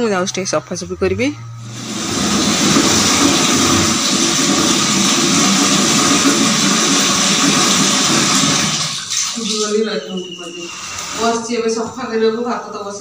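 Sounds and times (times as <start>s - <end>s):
water running into plastic bucket: 1.7s - 9.9s.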